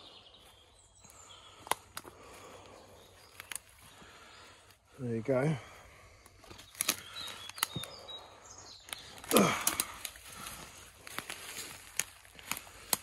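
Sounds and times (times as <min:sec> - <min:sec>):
footsteps on dry leaves and sticks: 0:00.0 - 0:04.9, 0:05.7 - 0:13.0
twigs snapping: 0:01.5 - 0:02.4, 0:03.2 - 0:04.2, 0:06.2 - 0:08.2, 0:08.8 - 0:13.0.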